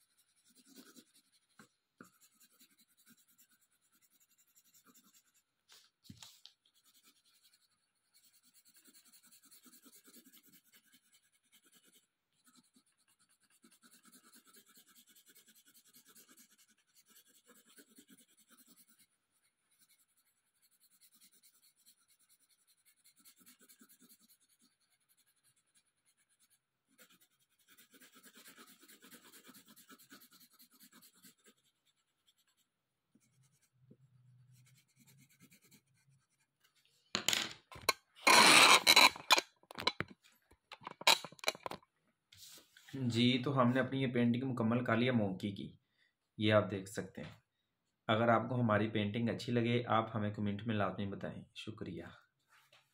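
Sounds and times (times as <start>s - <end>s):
pencil scratching on paper: 0.0s - 36.8s, 37.7s - 40.1s, 40.8s - 41.8s.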